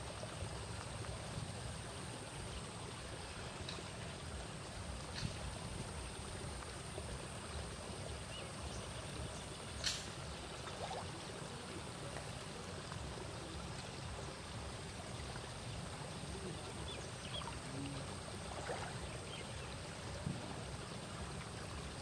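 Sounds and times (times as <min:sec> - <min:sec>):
flowing water rushing: 0:00.0 - 0:22.0.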